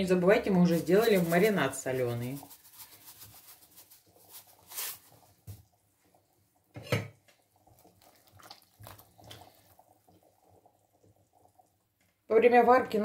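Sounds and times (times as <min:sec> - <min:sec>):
salt pouring into pot: 0:00.4 - 0:05.7, 0:07.5 - 0:11.6.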